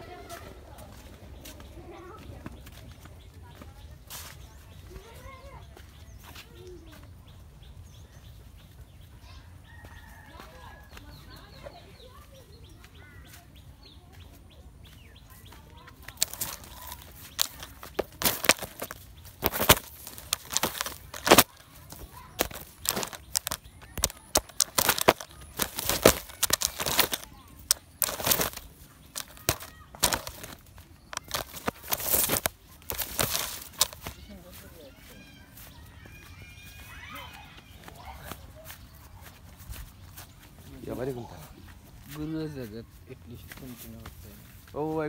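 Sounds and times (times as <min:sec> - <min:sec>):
chickens flapping wings: 0:16.2 - 0:34.2.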